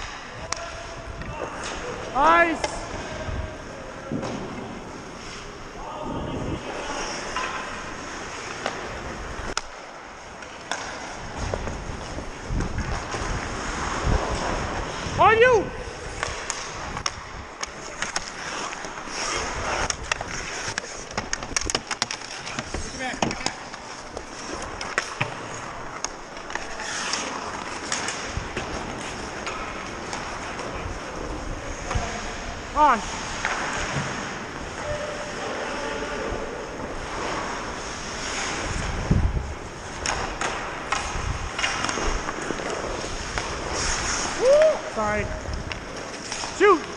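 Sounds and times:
skates scraping ice: 0:00.0 - 0:46.9
wind on microphone: 0:05.9 - 0:07.0, 0:11.2 - 0:17.5, 0:38.1 - 0:40.4, 0:41.0 - 0:42.3
hockey sticks clicking on ice: 0:06.6 - 0:35.2, 0:36.6 - 0:46.9.

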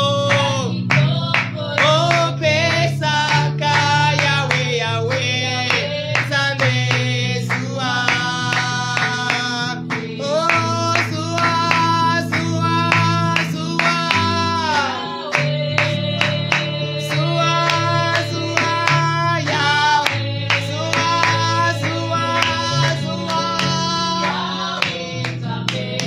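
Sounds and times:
woman singing: 0:00.0 - 0:03.8, 0:13.9 - 0:26.0
guitar and bass: 0:00.0 - 0:26.0
hand clapping: 0:00.0 - 0:26.0.

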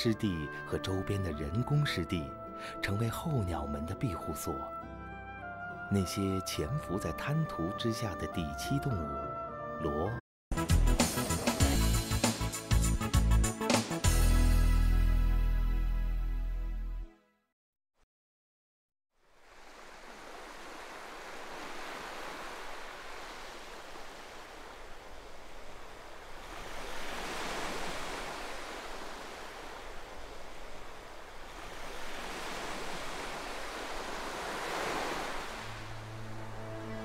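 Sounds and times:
wind: 0:19.1 - 0:37.0
waves washing on choppy water: 0:19.4 - 0:36.7.

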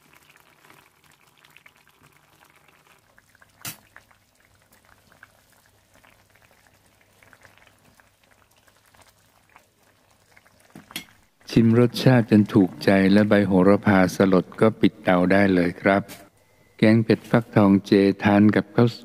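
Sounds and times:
curry bubbling in a pan: 0:00.0 - 0:13.7.

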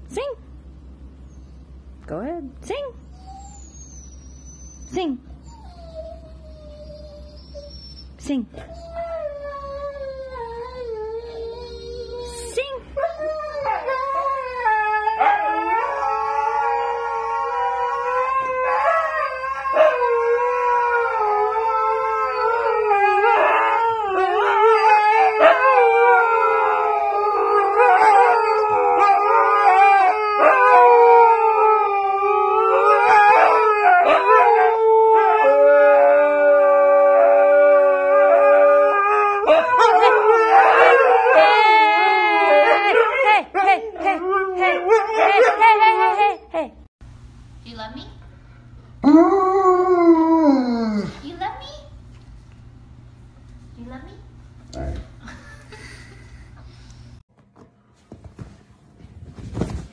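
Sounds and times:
husky howling: 0:13.0 - 0:46.5, 0:49.0 - 0:51.2.

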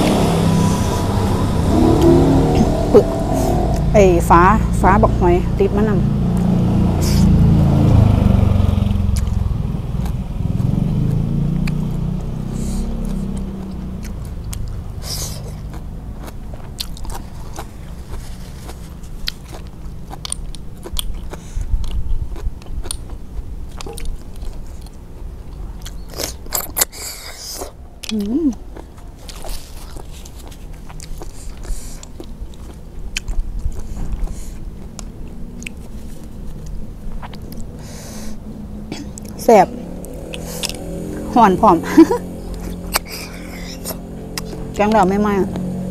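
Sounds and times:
muffled chewing: 0:09.1 - 0:41.3, 0:41.9 - 0:45.8
slurping and clicks: 0:29.2 - 0:38.4, 0:40.0 - 0:40.9, 0:42.5 - 0:45.7.

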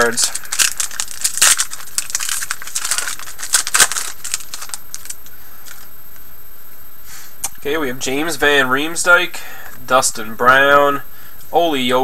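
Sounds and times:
plastic wrapper tearing and crinkling: 0:00.0 - 0:05.3.

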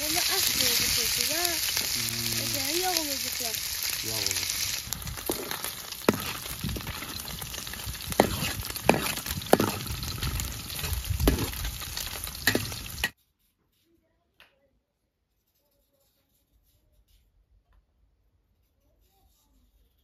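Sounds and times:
fat sizzling in a pan: 0:00.0 - 0:13.2
skimmer scraping a metal pan: 0:00.0 - 0:13.2.

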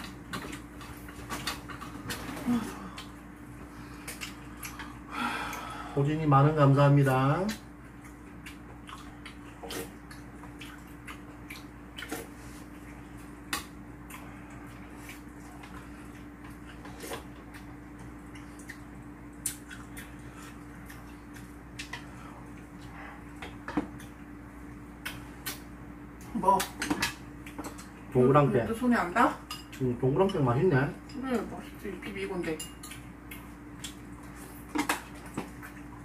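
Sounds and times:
faint steady hum: 0:00.0 - 0:36.0
slurping and chewing: 0:08.0 - 0:24.2.

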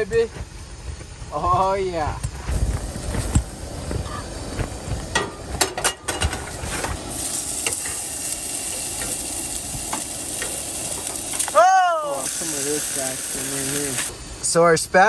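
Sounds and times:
pans knocking and clinking: 0:05.2 - 0:06.5
burger patty sizzling in pan: 0:06.4 - 0:14.2.

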